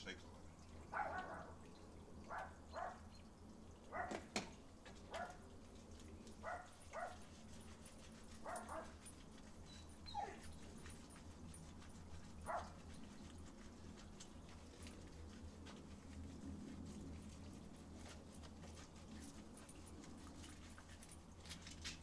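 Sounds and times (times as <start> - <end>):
dog whimpering and yipping: 9.6 - 10.6.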